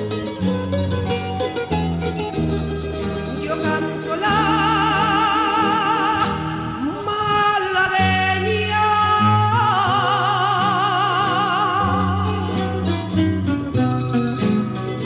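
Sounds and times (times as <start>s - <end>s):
person singing with vibrato: 3.2s - 15.0s.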